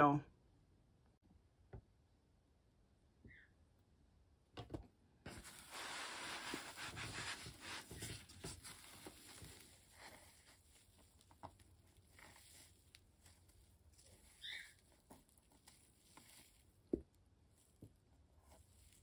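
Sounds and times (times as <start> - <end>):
vinyl fabric rustling and scraping: 5.3 - 16.8.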